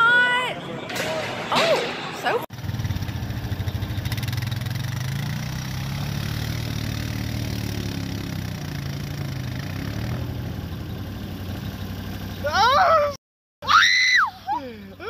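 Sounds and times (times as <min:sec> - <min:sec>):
quad bike engine running: 0:02.5 - 0:13.1.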